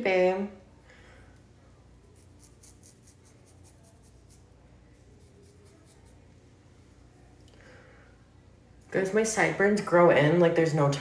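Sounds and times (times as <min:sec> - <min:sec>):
low room hum: 0:00.0 - 0:11.0
eyeliner pen scratching: 0:02.0 - 0:04.5, 0:05.1 - 0:06.2.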